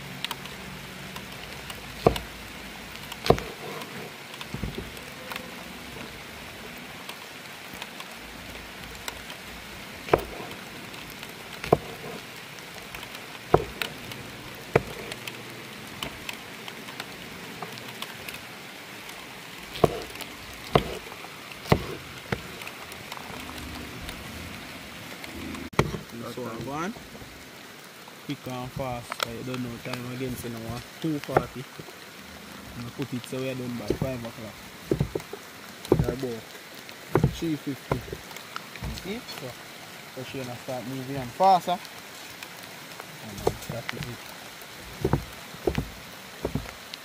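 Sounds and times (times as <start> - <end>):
steady hiss: 0.0 - 47.0
sharp short knocks: 2.0 - 2.3, 3.2 - 3.7, 10.1 - 10.6, 11.6 - 12.2, 13.5 - 14.0, 14.7 - 15.2, 19.8 - 22.6, 25.7 - 26.0, 33.9 - 34.2, 34.9 - 36.3, 37.1 - 39.1, 45.0 - 46.8.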